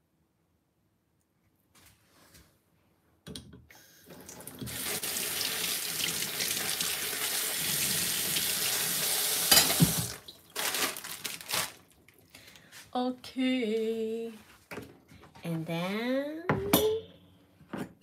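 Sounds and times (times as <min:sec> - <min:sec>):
tap running into a sink: 0:09.4 - 0:10.2.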